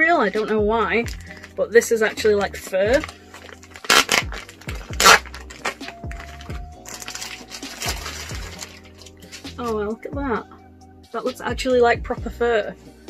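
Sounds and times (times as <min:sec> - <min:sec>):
soft background music: 0:00.0 - 0:13.0
plastic packaging crinkling: 0:00.4 - 0:01.6, 0:02.6 - 0:09.6.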